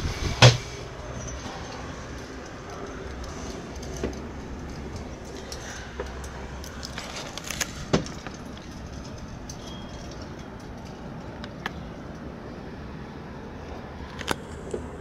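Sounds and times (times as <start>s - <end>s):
metallic clicks and rattles: 1.1s - 12.3s.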